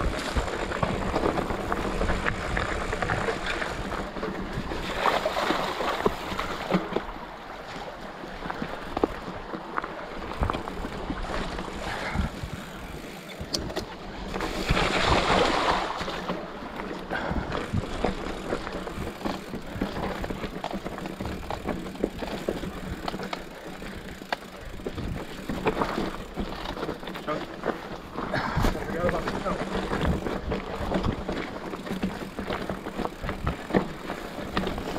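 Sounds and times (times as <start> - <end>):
bike rattling and clicking: 0.0 - 34.9
bike tyres on gravel: 0.0 - 34.9
wind buffeting microphone: 24.1 - 26.4.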